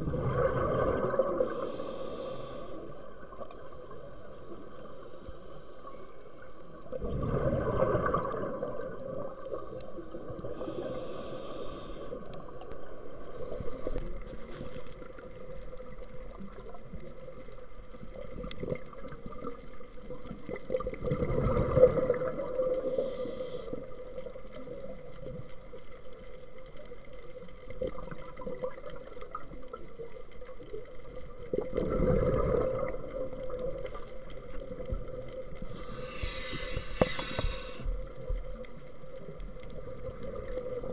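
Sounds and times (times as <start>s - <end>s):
exhaled bubbles underwater: 0.0s - 4.8s, 6.4s - 14.4s, 15.0s - 40.9s
faint steady hum: 0.0s - 40.9s
high hisses: 1.5s - 2.9s, 10.6s - 12.2s, 23.0s - 23.8s, 35.7s - 37.9s.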